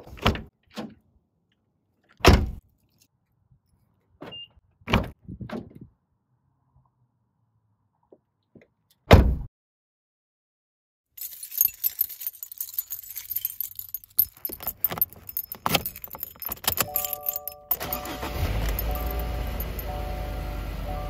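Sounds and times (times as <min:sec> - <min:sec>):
car keys jangling: 0:11.2 - 0:20.2
electronic chime: 0:16.8 - 0:21.0
car door shutting: 0:17.7 - 0:21.0.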